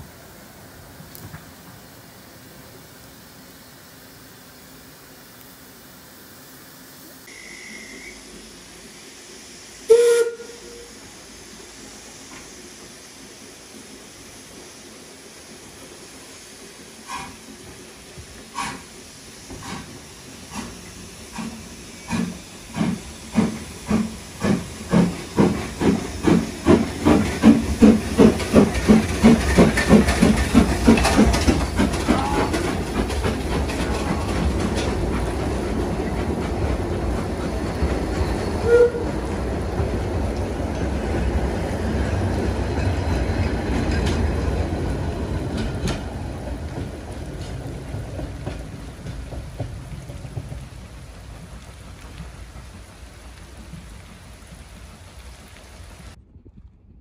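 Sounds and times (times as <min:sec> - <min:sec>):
rumble of moving train: 0:00.0 - 0:57.0
brief tone: 0:07.3 - 0:08.3
steam locomotive chuffing: 0:07.3 - 0:55.2.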